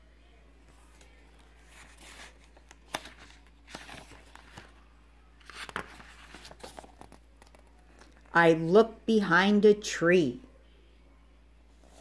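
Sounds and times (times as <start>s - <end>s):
book pages rustling: 0.7s - 4.8s, 5.4s - 8.3s, 11.8s - 12.0s.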